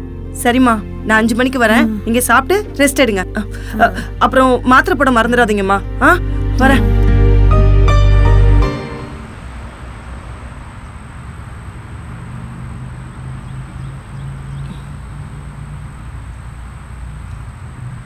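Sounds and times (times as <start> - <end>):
low hum: 0.0 - 18.0.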